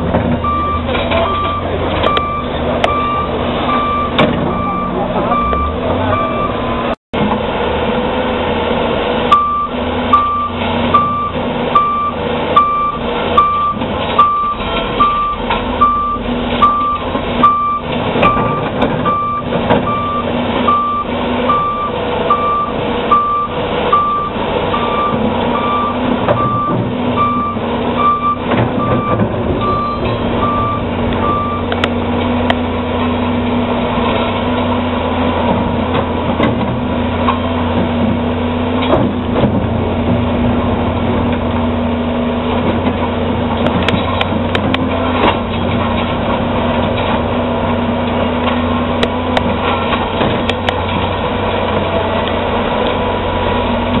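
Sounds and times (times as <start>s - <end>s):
diesel engine running: 0.0s - 54.0s
reverse alarm beeping: 0.4s - 6.6s, 9.3s - 31.7s.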